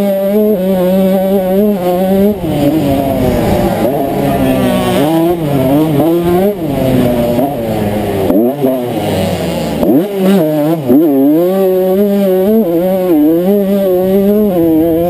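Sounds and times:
two-stroke engine revving: 0.0 - 15.0
wind rumbling on microphone: 1.7 - 8.3.

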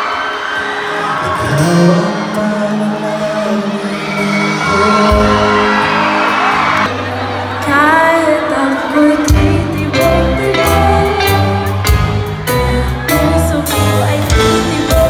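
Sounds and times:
live pop band playing: 0.0 - 15.0
woman singing: 7.6 - 15.0.

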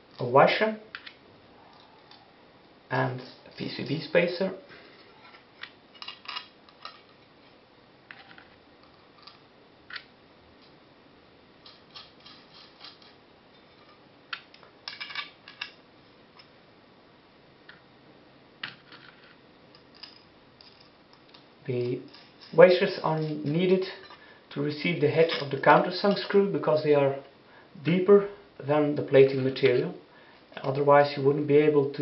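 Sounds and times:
small metal hardware clinking: 19.7 - 22.6.

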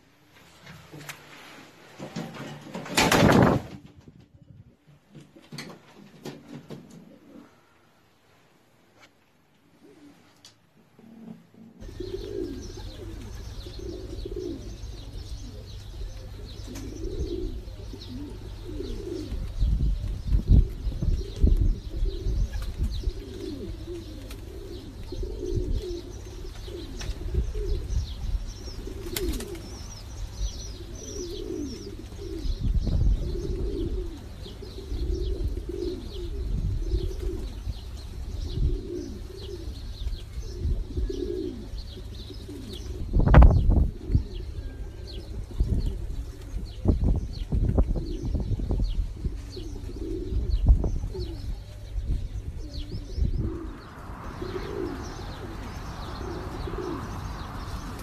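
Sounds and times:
pigeons cooing: 4.7 - 8.2, 9.6 - 58.0
small birds chirping: 11.8 - 58.0
low rumble: 52.0 - 58.0.

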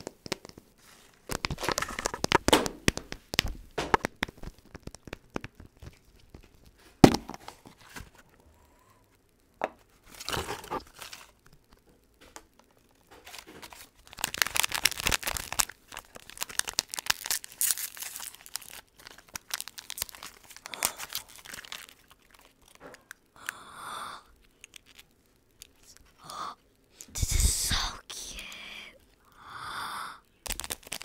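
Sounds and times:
plastic wrapper crinkling: 0.0 - 8.4, 9.7 - 23.3, 24.3 - 26.3, 30.4 - 31.0.

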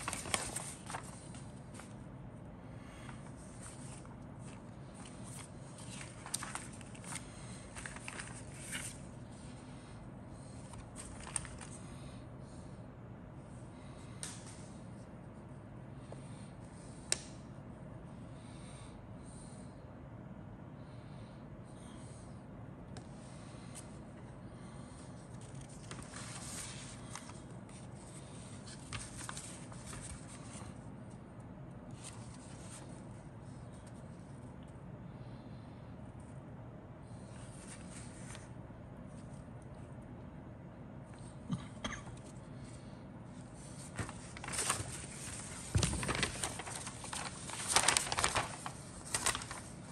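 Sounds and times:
paper rustling: 0.0 - 2.0, 2.9 - 9.5, 10.4 - 12.0, 24.8 - 30.8, 31.9 - 34.1, 37.2 - 38.5, 43.6 - 49.9
low steady hum: 0.0 - 49.9.

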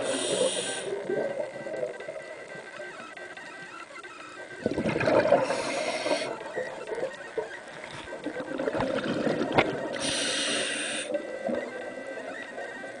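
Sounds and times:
low rumble of water: 4.4 - 10.0
exhaled bubbles gushing: 4.6 - 10.1.

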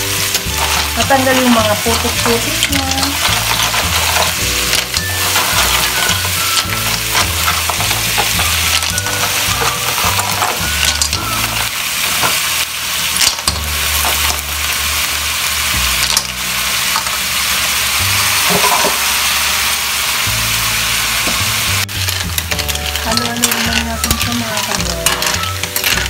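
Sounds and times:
background music with bass line: 0.0 - 11.7, 20.3 - 26.0
snails sizzling in a wok: 0.0 - 26.0.

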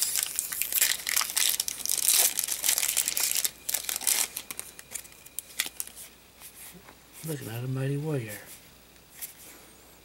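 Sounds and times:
foil wrapper crinkling: 0.0 - 6.1.

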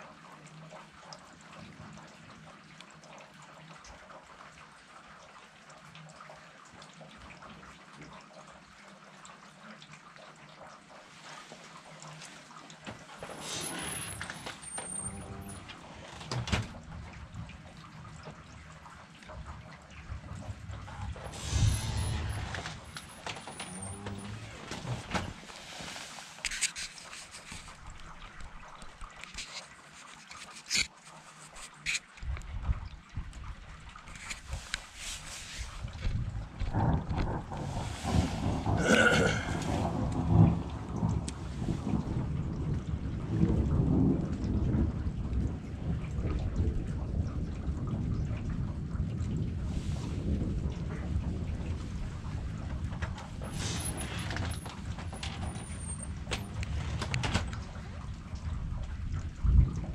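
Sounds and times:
rain drops ticking and dripping: 0.0 - 59.9
low rumble: 19.4 - 25.5.

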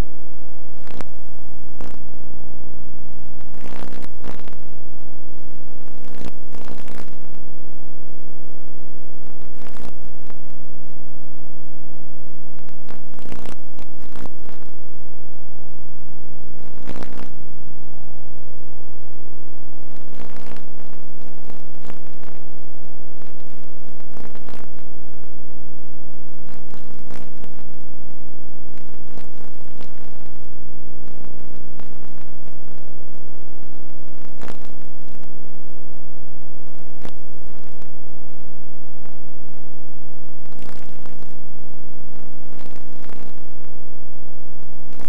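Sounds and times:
loud electrical buzz: 0.0 - 7.6, 8.5 - 10.8, 12.4 - 17.6, 19.7 - 25.5
short crackles: 0.7 - 2.1, 3.4 - 4.6, 5.8 - 7.4, 9.2 - 10.6, 12.6 - 14.8, 16.6 - 17.4, 19.8 - 25.0, 26.4 - 27.9, 28.7 - 30.5.

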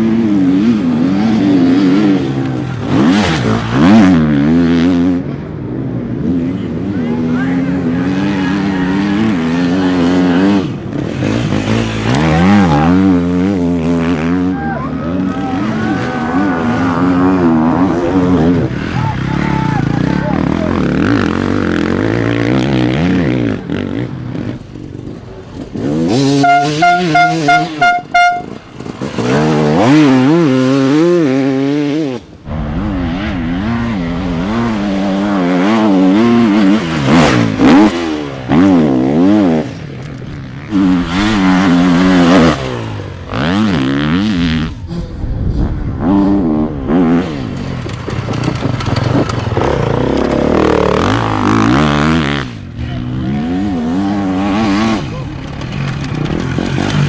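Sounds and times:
dirt bike engines revving: 0.0 - 57.0.

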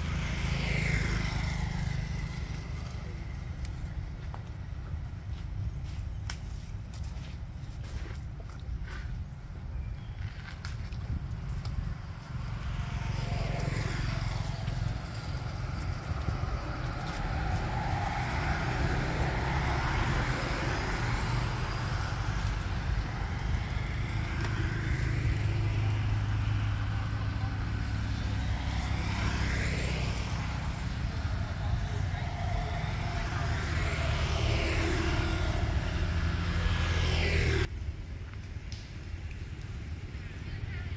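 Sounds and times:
vehicle passing: 0.0 - 4.8, 11.7 - 37.7
steady low rumble: 14.1 - 28.6.

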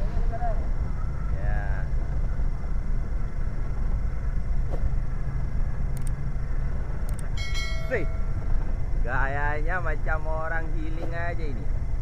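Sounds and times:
boat engine droning: 0.0 - 9.2.

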